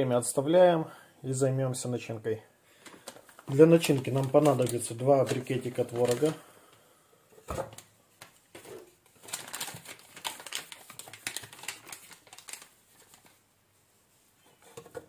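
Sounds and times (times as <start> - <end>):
paper wrapping crinkling: 2.8 - 6.4, 7.7 - 13.4.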